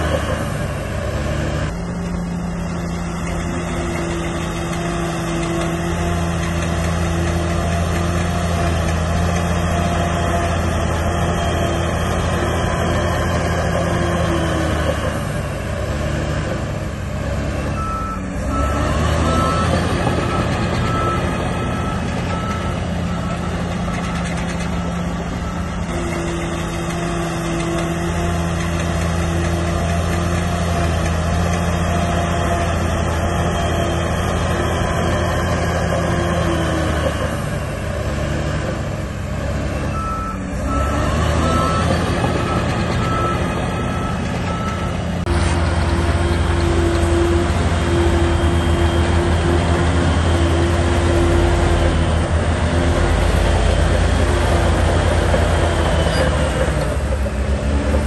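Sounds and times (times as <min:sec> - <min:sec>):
diesel machinery running: 0:00.0 - 0:58.0
reversing alarm beeping: 0:17.7 - 0:28.8, 0:39.8 - 0:45.3.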